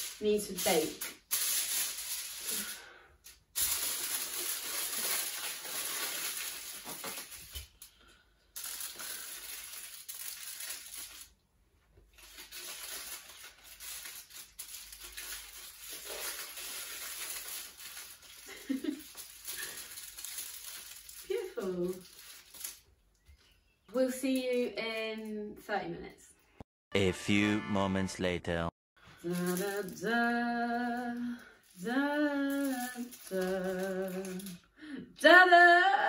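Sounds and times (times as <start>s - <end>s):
aluminium foil crinkling: 0.0s - 11.4s, 12.0s - 23.2s, 29.0s - 34.6s.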